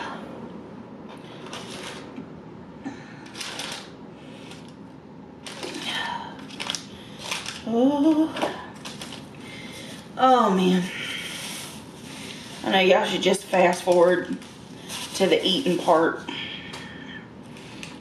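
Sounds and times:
paper wrappers crinkling: 1.2 - 2.1, 3.2 - 4.7, 5.4 - 10.0, 12.2 - 16.8, 17.5 - 18.0
voice humming: 7.6 - 8.7.

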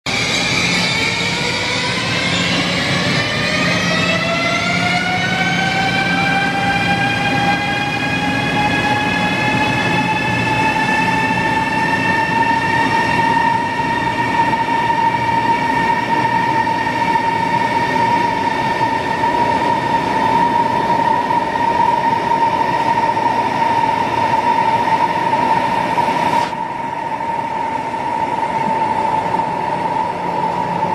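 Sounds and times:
electric train drive whine: 0.1 - 30.9
rush of passing train cars: 0.1 - 30.9.

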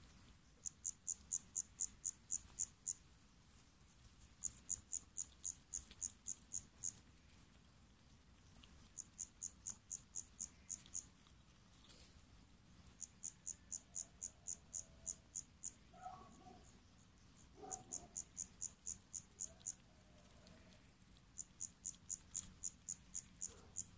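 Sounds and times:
cricket chirping: 0.0 - 11.4, 12.8 - 23.9.

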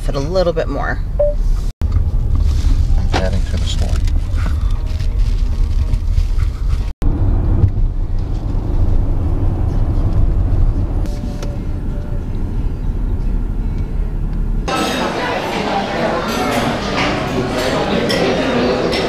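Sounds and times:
car engine rumble: 1.0 - 14.7
road noise inside car: 1.2 - 14.7.

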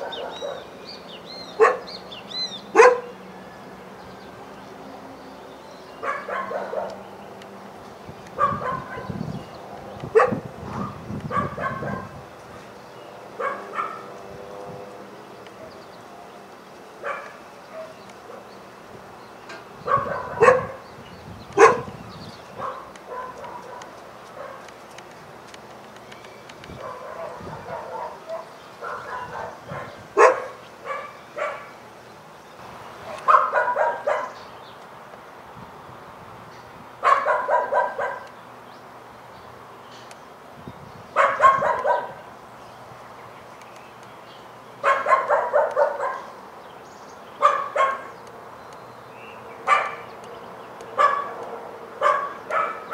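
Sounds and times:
dog barking: 0.0 - 0.7, 1.6 - 1.9, 2.7 - 3.2, 6.0 - 7.0, 8.4 - 9.2, 10.1 - 12.2, 13.4 - 14.1, 17.0 - 18.5, 19.8 - 20.8, 21.6 - 21.9, 22.6 - 24.7, 26.8 - 31.8, 33.1 - 34.4, 37.0 - 38.3, 41.2 - 42.2, 44.8 - 46.4, 47.4 - 48.2, 49.6 - 50.1, 51.0 - 52.9.

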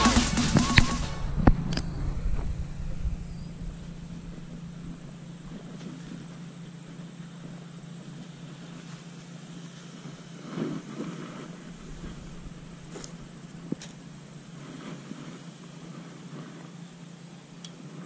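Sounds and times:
passing cars hum: 0.0 - 5.8.

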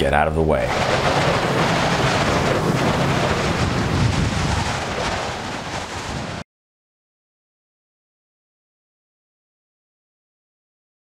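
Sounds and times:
wind: 0.0 - 6.4
rushing water: 0.7 - 6.4.

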